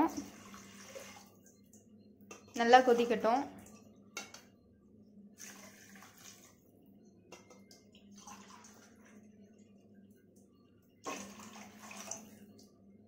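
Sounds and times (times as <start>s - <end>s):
faint liquid sounds: 0.0s - 13.0s
water pouring splash: 11.0s - 12.4s.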